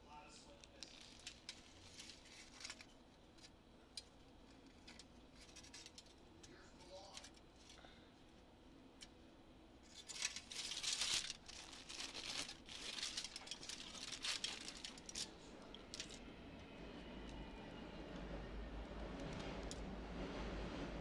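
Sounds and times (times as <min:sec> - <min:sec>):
paper and foil wrapping crinkling: 0:00.5 - 0:06.2, 0:06.8 - 0:07.9, 0:09.8 - 0:16.2.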